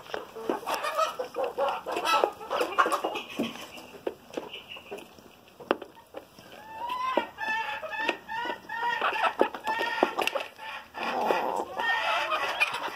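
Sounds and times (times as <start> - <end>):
hens clucking: 0.0 - 12.9.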